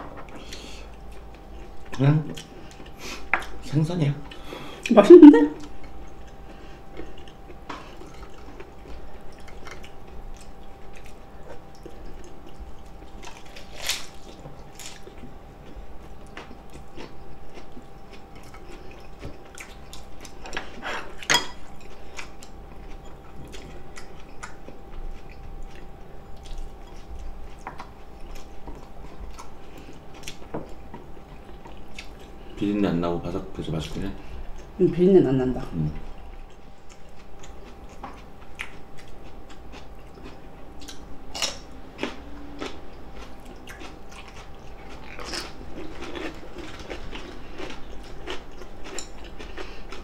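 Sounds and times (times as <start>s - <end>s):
chewing and wet mouth clicks: 36.5s - 41.6s, 42.6s - 50.0s.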